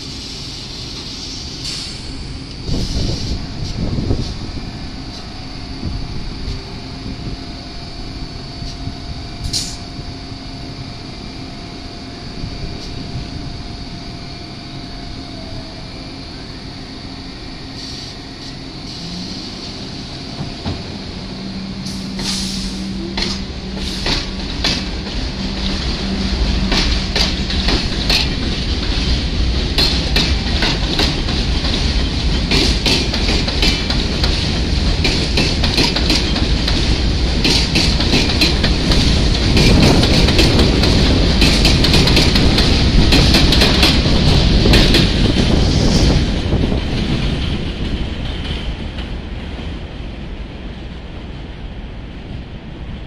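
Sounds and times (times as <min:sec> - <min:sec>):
subway train pulling away: 0:00.0 - 0:53.0
wheels clattering over rail joints: 0:23.1 - 0:45.6.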